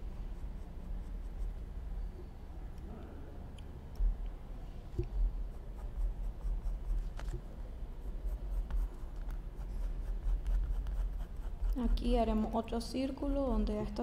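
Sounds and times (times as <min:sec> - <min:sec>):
pencil scratching on paper: 0:05.4 - 0:07.2, 0:08.0 - 0:12.1.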